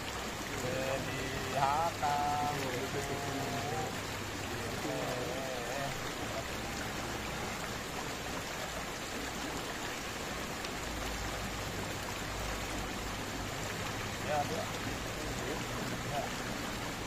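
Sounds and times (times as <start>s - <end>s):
stream running over rocks: 0.0s - 17.0s.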